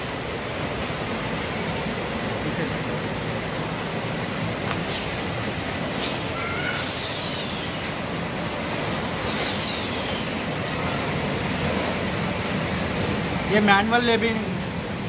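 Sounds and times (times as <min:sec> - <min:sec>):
short falling hisses: 0:05.9 - 0:07.8, 0:09.2 - 0:10.4.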